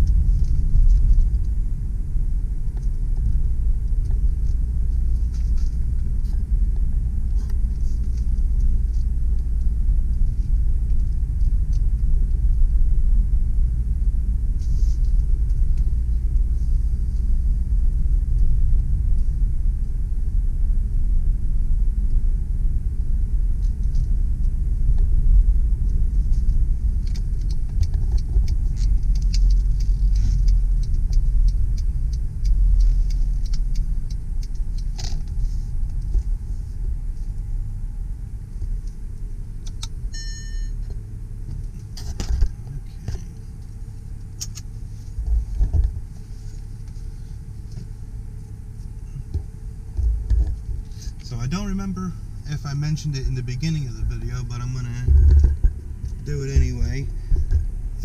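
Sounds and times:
engine and road rumble: 0:00.0 - 0:58.0
light ticks and rattles: 0:23.6 - 0:37.5
brief chime: 0:40.2 - 0:40.8.

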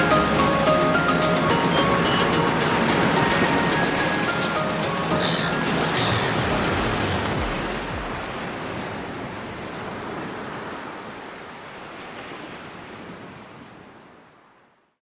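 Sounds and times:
steady rushing noise: 0:00.0 - 0:10.8.

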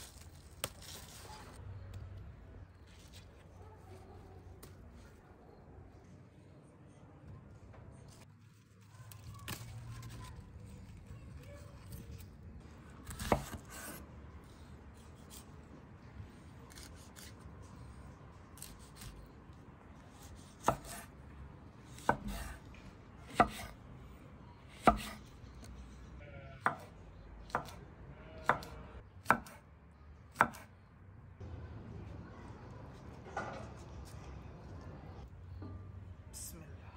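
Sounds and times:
knife cutting vegetables: 0:13.0 - 0:15.8, 0:16.5 - 0:17.8, 0:20.0 - 0:21.1.

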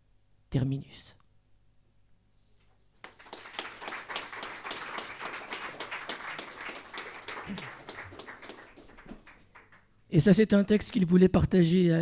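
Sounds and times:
small audience applauding: 0:03.0 - 0:10.0.

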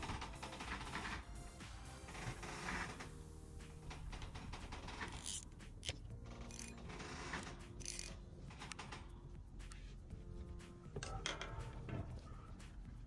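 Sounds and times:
quiet background music: 0:00.0 - 0:13.0
fishing reel clicking and whirring: 0:04.2 - 0:09.0.

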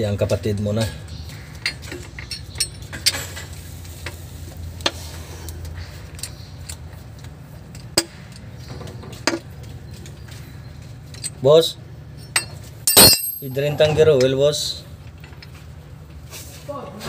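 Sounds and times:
wrench clinking on metal: 0:01.6 - 0:03.5, 0:12.2 - 0:14.4.

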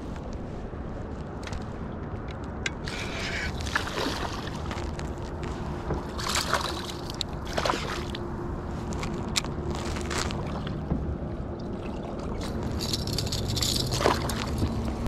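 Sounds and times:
water lapping against kayak hull: 0:02.8 - 0:12.8
fish splashing: 0:03.0 - 0:05.0, 0:06.1 - 0:08.2.

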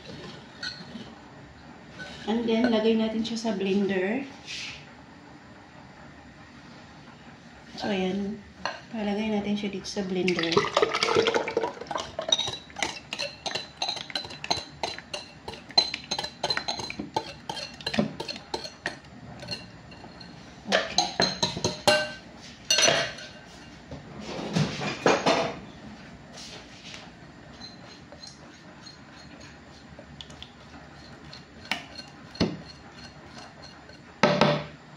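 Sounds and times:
utensils clinking against dishes: 0:00.0 - 0:01.1, 0:10.4 - 0:23.8, 0:27.5 - 0:29.6, 0:31.0 - 0:34.1
juice poured into plastic jug: 0:10.4 - 0:11.9.

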